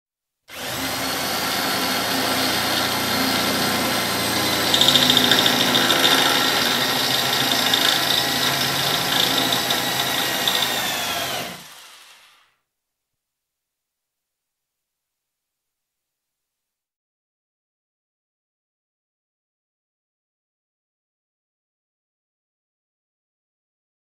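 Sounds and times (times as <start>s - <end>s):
electric drill boring sheet metal: 0.5s - 12.5s.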